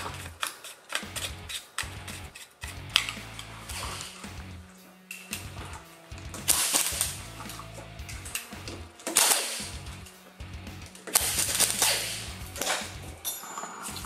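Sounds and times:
impact wrench bursts: 0:09.0 - 0:10.0, 0:11.0 - 0:13.2.

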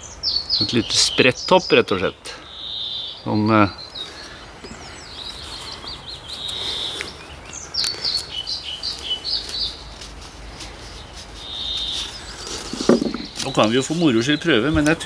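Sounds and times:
songbirds singing: 0:00.0 - 0:15.0
knife scraping wood: 0:10.0 - 0:13.6.

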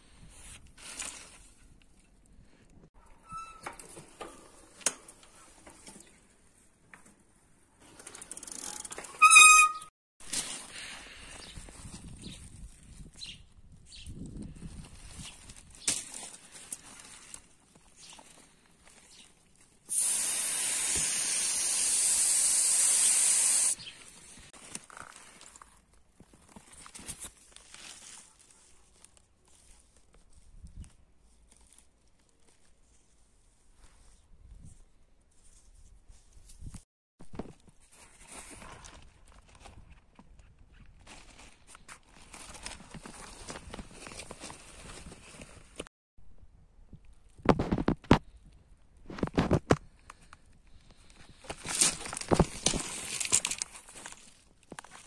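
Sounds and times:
bicycle tyre rustling: 0:03.2 - 0:13.0
gas hissing out of tyre: 0:19.9 - 0:23.8.

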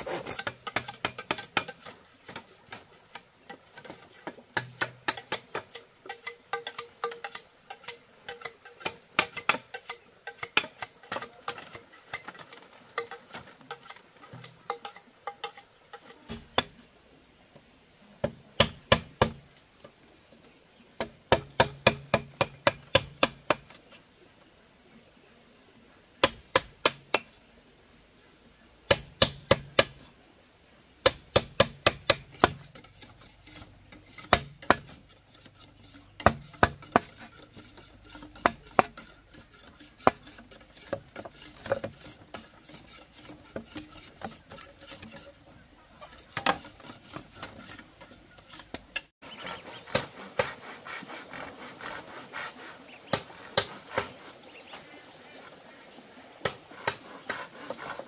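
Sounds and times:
mallet knocking chisel into bamboo: 0:28.9 - 0:30.0, 0:31.0 - 0:32.9, 0:34.2 - 0:35.0.

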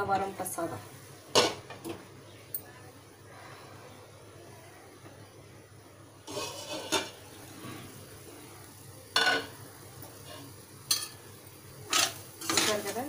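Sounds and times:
pan lid scraping and clacking: 0:06.3 - 0:07.2.

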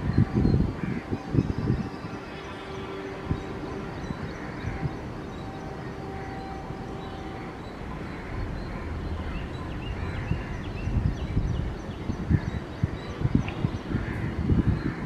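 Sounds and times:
birds calling: 0:00.0 - 0:15.0
diesel locomotive rumbling: 0:01.8 - 0:12.3.

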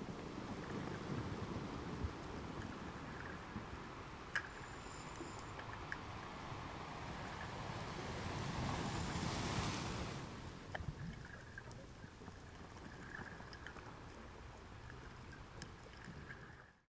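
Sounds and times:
sharp underwater clicks: 0:04.2 - 0:06.1
underwater hiss: 0:04.4 - 0:06.0.

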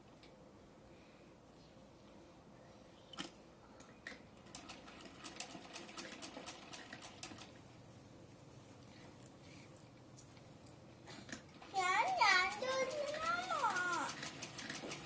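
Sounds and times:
sewing machine clicking: 0:04.4 - 0:07.6, 0:11.6 - 0:15.0.

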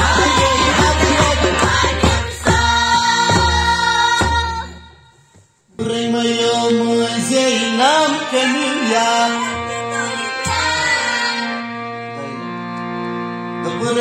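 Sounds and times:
man singing: 0:00.0 - 0:01.7, 0:05.7 - 0:11.1, 0:13.6 - 0:14.0
sustained keyboard notes: 0:06.6 - 0:14.0.

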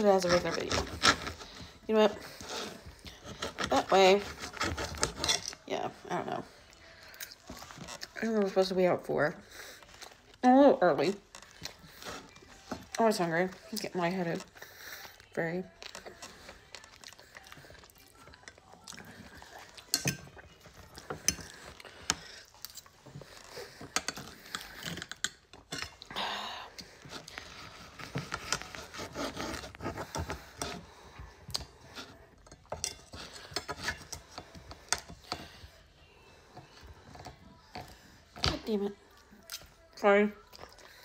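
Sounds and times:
cutlery scraping on a plate: 0:00.0 - 0:05.7, 0:18.3 - 0:26.1, 0:27.0 - 0:35.7.

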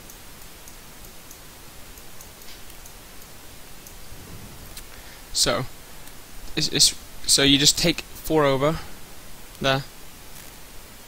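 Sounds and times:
faint light ticking: 0:00.0 - 0:04.1
steady hiss: 0:00.0 - 0:11.0.

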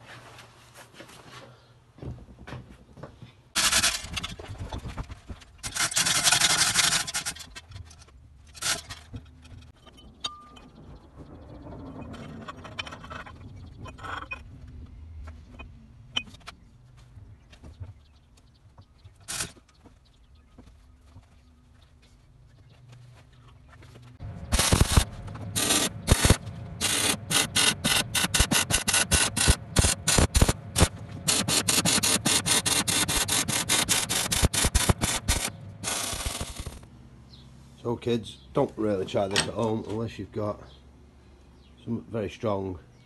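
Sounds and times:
hoist chains rattling: 0:03.6 - 0:04.4, 0:05.6 - 0:10.8
steel scraping and knocking: 0:03.6 - 0:16.5
scattered clicks: 0:24.5 - 0:36.8.

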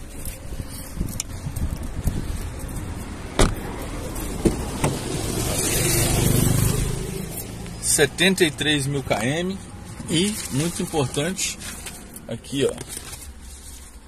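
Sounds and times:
motorcycle passing by: 0:03.7 - 0:07.9.

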